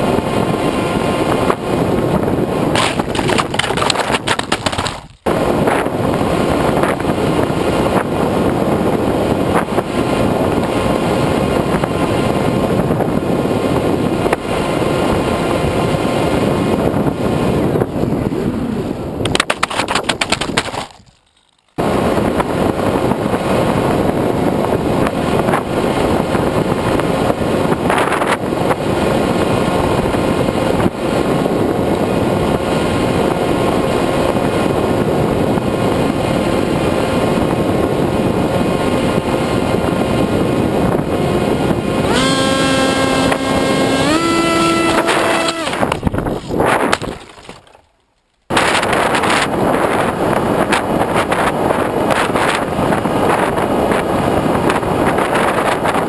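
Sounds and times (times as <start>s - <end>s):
wind noise: 0.0s - 56.0s
fast even clicking: 19.2s - 21.8s
model plane motor whine: 41.3s - 46.1s.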